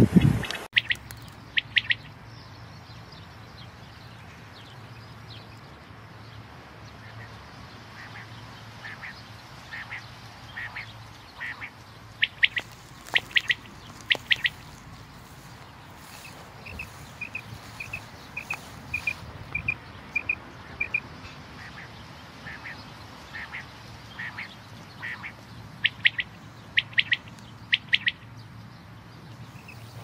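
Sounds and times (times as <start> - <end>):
quail singing: 0.1 - 2.1, 8.0 - 28.2.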